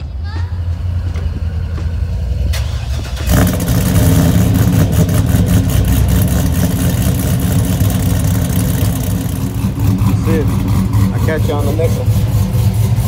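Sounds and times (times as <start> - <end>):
car engine running loud through exhaust: 3.2 - 13.0.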